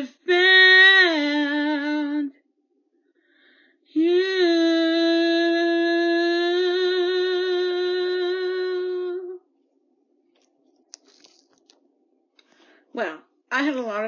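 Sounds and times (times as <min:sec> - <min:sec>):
woman singing unaccompanied: 0:00.0 - 0:02.4, 0:04.0 - 0:09.4.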